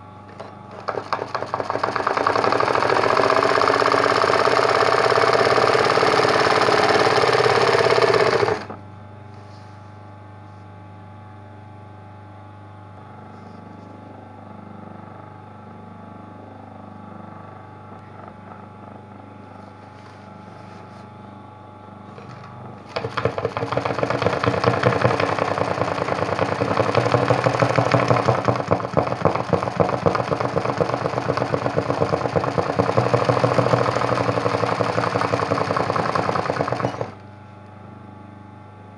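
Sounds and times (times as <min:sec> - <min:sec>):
sewing machine stitching: 0:00.3 - 0:08.8, 0:22.2 - 0:37.2.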